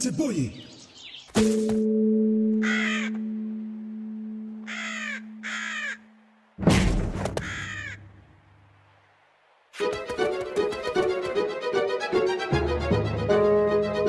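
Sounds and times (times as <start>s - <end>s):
harsh caw-like calls: 2.6s - 3.3s, 4.6s - 6.1s, 7.4s - 8.1s
loud sudden thud: 6.6s - 7.4s.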